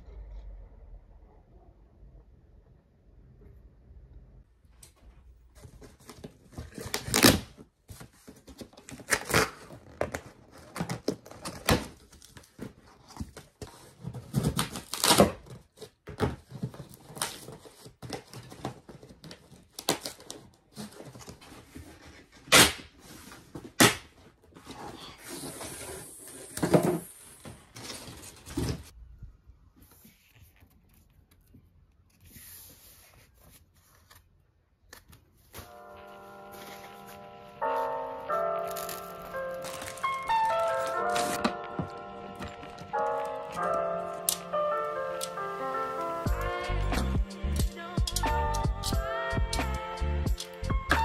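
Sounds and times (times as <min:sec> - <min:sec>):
cardboard tearing and scraping: 0:05.7 - 0:28.9, 0:35.4 - 0:46.5.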